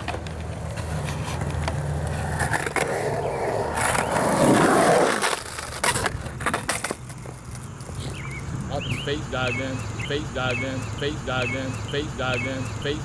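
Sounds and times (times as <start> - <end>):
skateboard clacking on concrete: 0.0 - 8.0
skateboard wheels rolling on concrete: 0.0 - 13.0.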